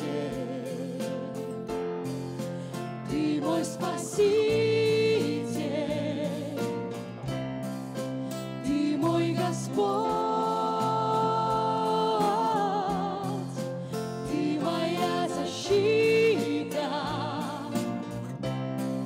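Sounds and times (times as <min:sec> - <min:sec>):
woman singing: 0:00.0 - 0:01.4, 0:03.1 - 0:06.8, 0:08.6 - 0:18.1.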